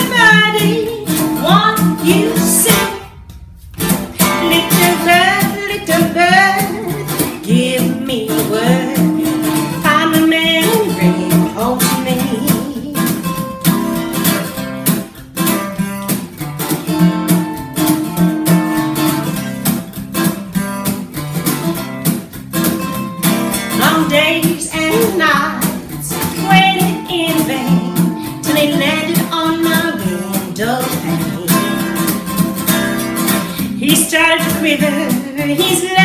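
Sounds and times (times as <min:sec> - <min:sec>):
woman singing: 0:00.0 - 0:03.2, 0:04.1 - 0:13.5, 0:23.7 - 0:32.6, 0:33.3 - 0:36.0
acoustic guitar strummed: 0:00.0 - 0:36.0.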